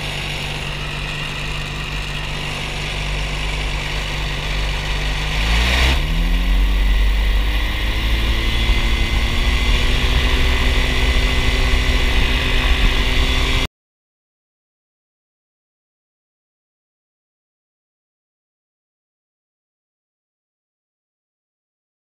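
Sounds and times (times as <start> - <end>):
ultralight aircraft engine revving: 0.0 - 13.7.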